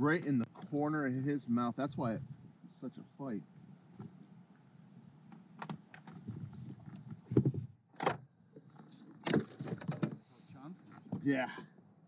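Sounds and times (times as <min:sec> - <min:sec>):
clicks and knocks in kayak: 0:05.3 - 0:10.2.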